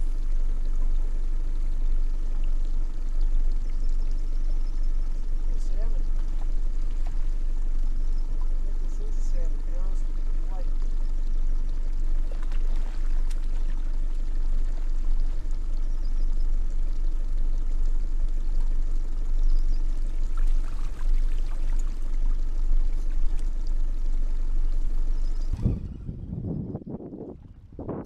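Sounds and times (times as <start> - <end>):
low rumble: 0.0 - 28.0
wind on microphone: 25.1 - 28.0.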